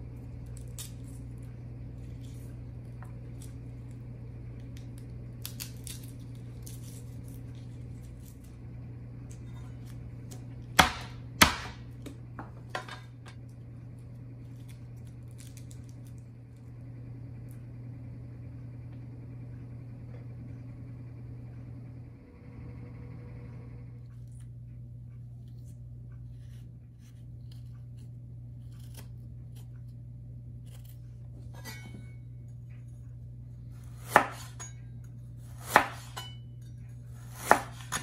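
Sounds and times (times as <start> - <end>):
garlic peeling crackles: 0.0 - 10.6, 13.4 - 16.6, 26.4 - 31.2
cleaver chopping on cutting board: 10.7 - 11.9, 34.0 - 34.6, 35.5 - 36.2, 37.3 - 38.0.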